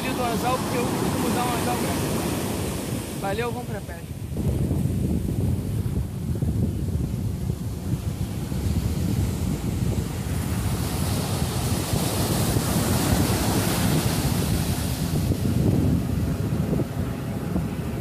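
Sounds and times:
ocean waves crashing on sand: 0:00.0 - 0:18.0
wind rumble on microphone: 0:00.0 - 0:18.0.

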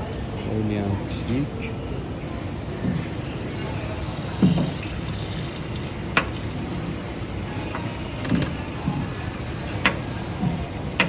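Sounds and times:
tap water running into sink: 0:02.7 - 0:11.0.

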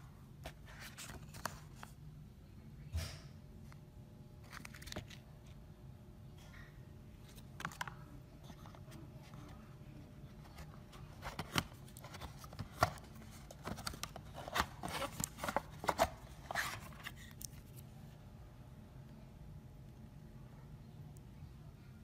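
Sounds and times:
faint low hum: 0:00.0 - 0:22.0.

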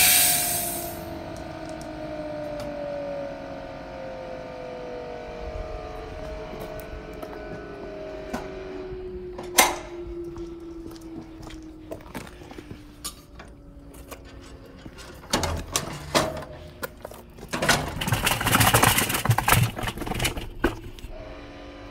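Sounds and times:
vacuum motor winding down: 0:00.0 - 0:11.8, 0:18.2 - 0:21.9
metal drum rattling on castors: 0:17.4 - 0:21.1.

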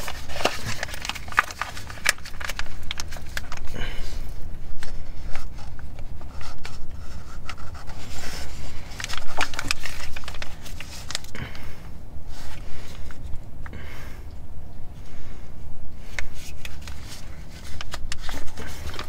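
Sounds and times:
person breathing heavily: 0:03.6 - 0:05.7, 0:08.0 - 0:17.6, 0:18.4 - 0:19.0.

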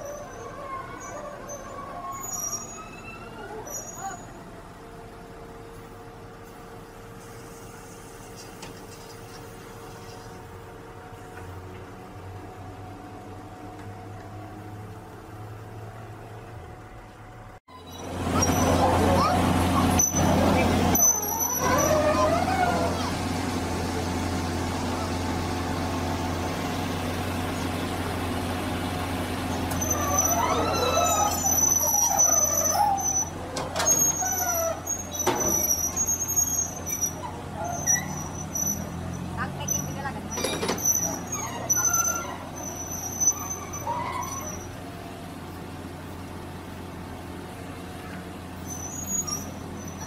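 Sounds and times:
high squeal: 0:00.0 - 0:04.4, 0:17.7 - 0:23.3, 0:29.6 - 0:44.9, 0:48.6 - 0:50.0
excavator engine humming: 0:00.0 - 0:50.0.

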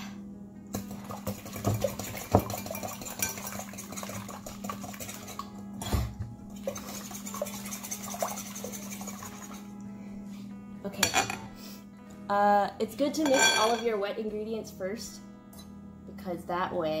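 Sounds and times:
whisk clinking in glass bowl: 0:00.8 - 0:05.5, 0:06.7 - 0:09.6
whisk knocking bowl: 0:00.8 - 0:05.5, 0:06.6 - 0:09.6.

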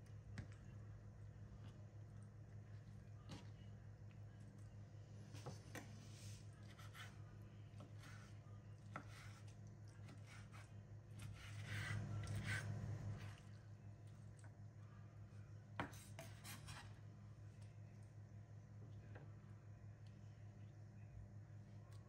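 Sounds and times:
faint low hum: 0:00.0 - 0:22.0
knife scraping across board: 0:10.2 - 0:13.3, 0:15.8 - 0:17.0.

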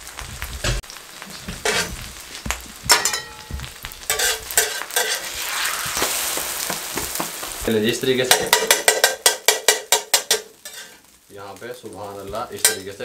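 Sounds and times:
egg sizzling in hot oil: 0:00.0 - 0:13.0
metal spatula scraping griddle: 0:01.4 - 0:02.1, 0:02.9 - 0:11.1.

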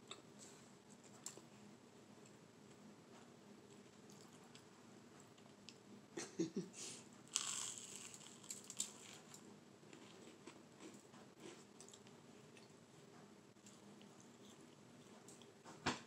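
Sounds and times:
crunch of biting toast: 0:07.3 - 0:09.4
chewing crunches: 0:07.3 - 0:12.8.

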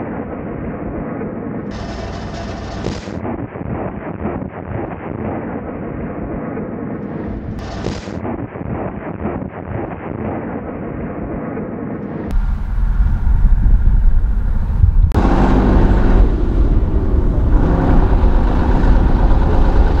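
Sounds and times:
heavy diesel truck engine rumbling: 0:12.3 - 0:20.0
wind on microphone: 0:12.3 - 0:20.0.

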